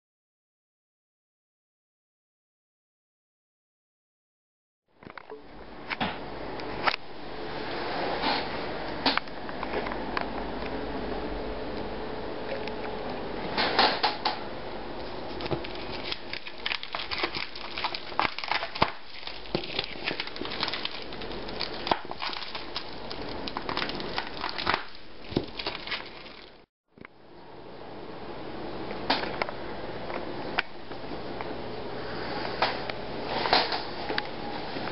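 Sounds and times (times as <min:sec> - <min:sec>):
plastic wrapping crinkling: 0:15.0 - 0:26.7.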